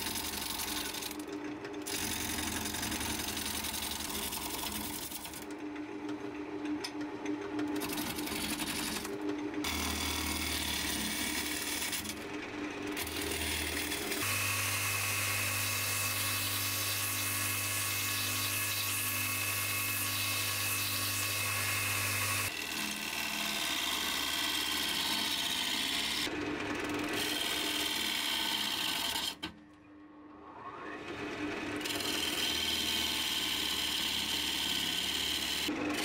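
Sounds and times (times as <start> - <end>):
belt grinder running: 0.0 - 1.2, 1.8 - 5.4, 7.8 - 29.4, 31.8 - 36.0
wood lathe spinning: 0.0 - 5.6, 7.7 - 29.5, 31.0 - 36.0
gouge cutting wood: 9.6 - 12.2, 12.9 - 26.3.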